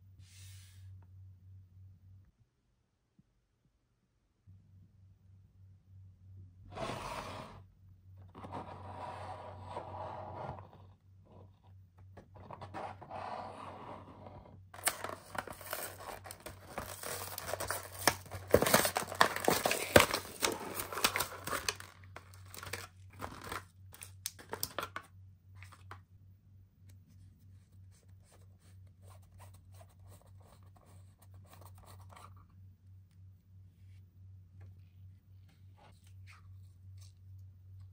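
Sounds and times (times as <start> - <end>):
packaging being torn open: 14.8 - 25.0.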